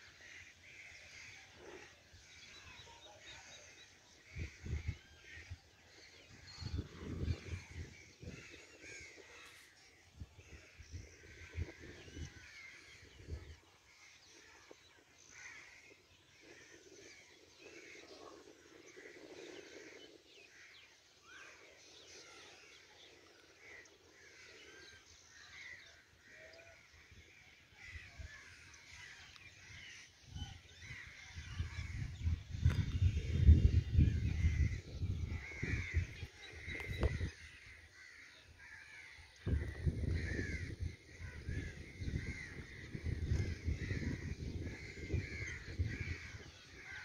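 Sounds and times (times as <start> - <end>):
crows cawing: 0.0 - 33.2, 34.2 - 47.0
birds calling: 0.0 - 47.0
wind buffeting microphone: 4.2 - 20.7, 27.0 - 38.1, 39.0 - 47.0.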